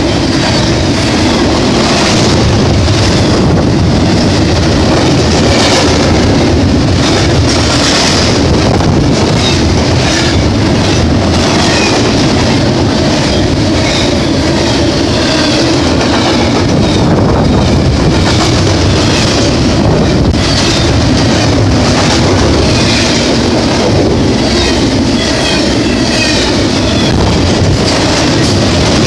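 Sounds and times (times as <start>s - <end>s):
train wheels rumbling on rails: 0.0s - 29.0s.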